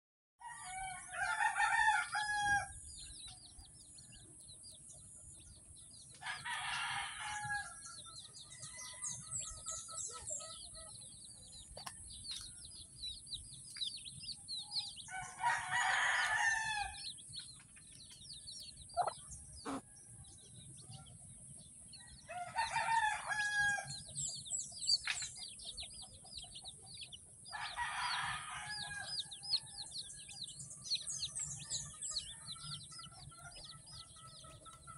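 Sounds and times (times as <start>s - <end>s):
rooster crowing: 0.4s - 2.8s, 6.2s - 7.9s, 15.1s - 17.0s, 22.0s - 24.0s, 27.5s - 29.7s
chicks peeping: 0.8s - 34.9s.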